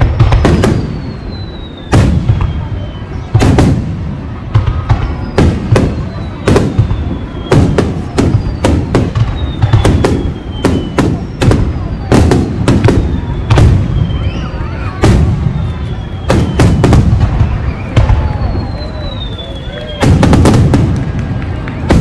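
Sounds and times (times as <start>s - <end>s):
firework whistles falling in pitch: 0.0s - 3.8s, 4.8s - 20.8s
fireworks bursting: 0.0s - 22.0s.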